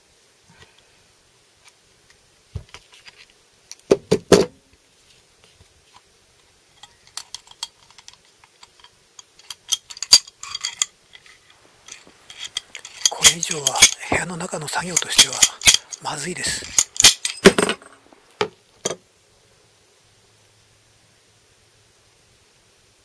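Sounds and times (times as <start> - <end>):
metal hand tools clanking: 9.4 - 18.0.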